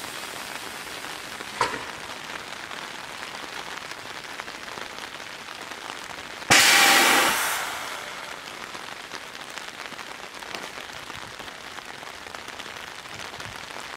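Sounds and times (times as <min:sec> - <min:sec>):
rain hissing: 0:00.0 - 0:13.9
train brakes air hissing: 0:06.5 - 0:08.4.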